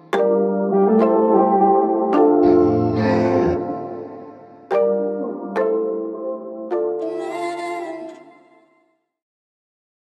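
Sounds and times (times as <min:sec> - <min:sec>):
slow instrumental music: 0:00.0 - 0:08.8
struck chord: 0:02.1 - 0:05.6.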